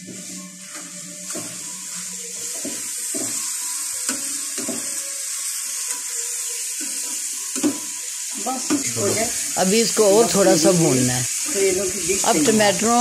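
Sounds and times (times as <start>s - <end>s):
spatula scraping a pan: 0.0s - 6.1s
vegetables sizzling in a pan: 0.0s - 13.0s.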